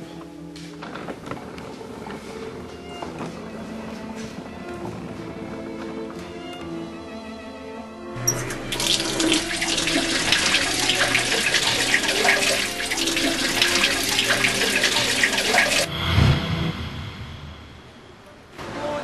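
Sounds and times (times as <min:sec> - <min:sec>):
tap water running into sink: 0:08.2 - 0:15.9
hands splashing water: 0:08.3 - 0:15.9.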